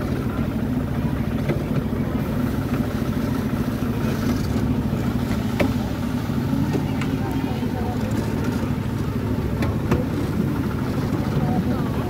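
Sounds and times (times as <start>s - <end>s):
miniature train engine drone: 0.0s - 12.0s.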